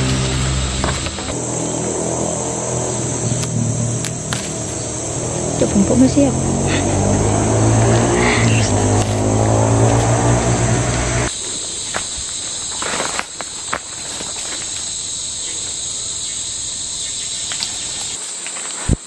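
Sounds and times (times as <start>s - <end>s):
low pitched hum: 0.0s - 11.3s
insects chirring: 0.0s - 19.0s
twigs snapping and leaves rustling: 3.3s - 4.9s, 11.9s - 14.9s.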